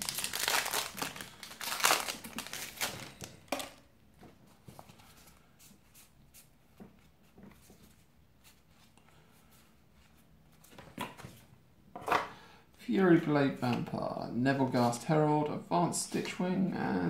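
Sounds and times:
plastic wrapper crinkling: 0.0 - 3.8.

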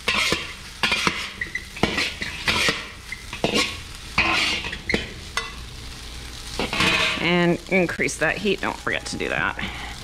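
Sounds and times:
metal utensils scraping a wok: 0.0 - 5.6, 6.5 - 7.4
oil sizzling: 0.0 - 10.0.

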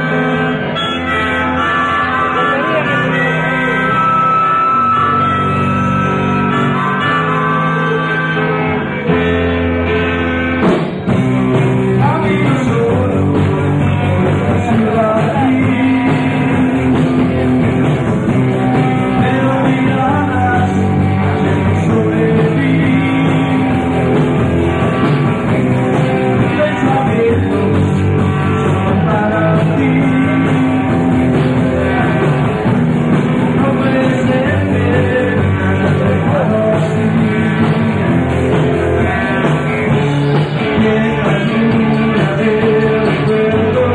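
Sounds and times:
rock band playing live: 0.0 - 43.9
person singing: 11.6 - 17.4, 18.2 - 24.2, 25.9 - 32.6, 33.4 - 43.9.

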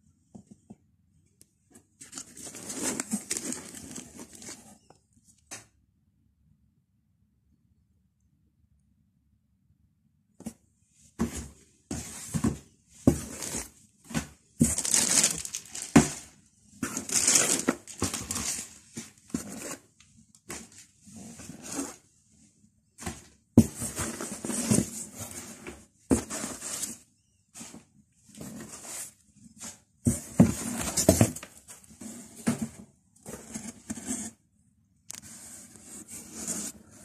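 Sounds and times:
packaging rustling and crinkling: 2.0 - 4.8, 13.1 - 19.8.

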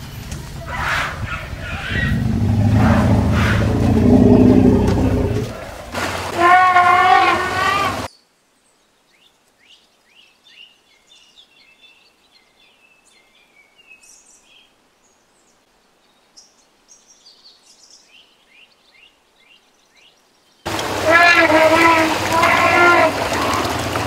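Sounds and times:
small birds chirping: 0.8 - 5.8, 8.1 - 20.8.

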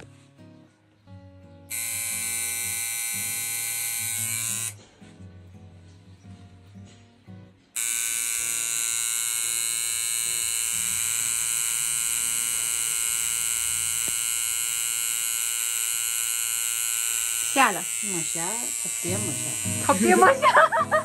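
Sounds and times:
tattoo machine buzzing: 1.7 - 4.9, 7.8 - 21.0.

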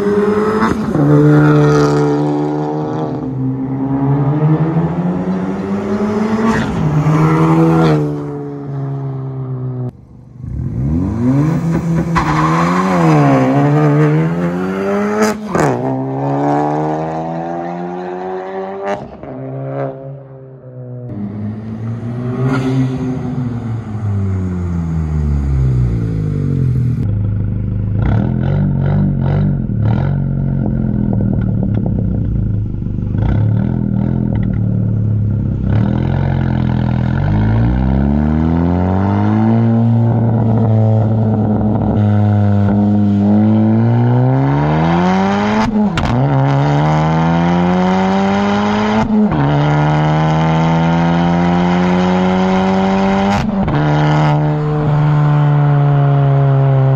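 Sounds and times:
car exhaust under hard driving: 21.1 - 56.9.

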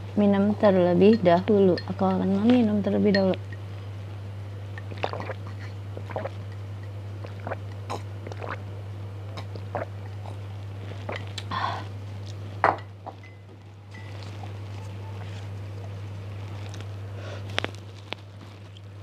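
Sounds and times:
steady low hum: 0.0 - 19.0
person gulping: 4.9 - 6.4, 7.2 - 8.6, 9.3 - 10.4.

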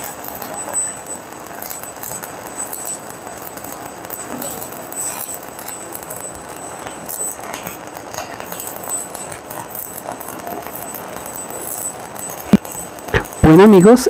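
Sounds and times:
spatter popping: 0.0 - 14.0
welding arc crackling: 0.0 - 14.0.

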